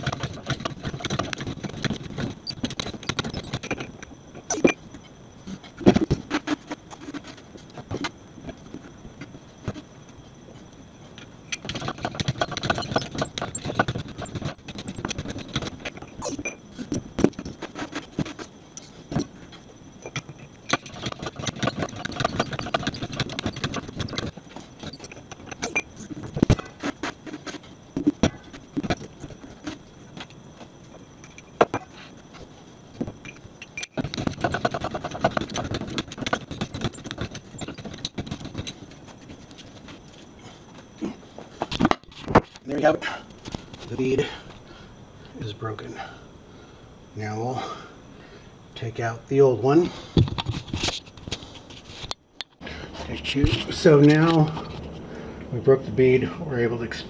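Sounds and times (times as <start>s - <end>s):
hydraulic jack clicking and knocking: 11.5s - 16.1s.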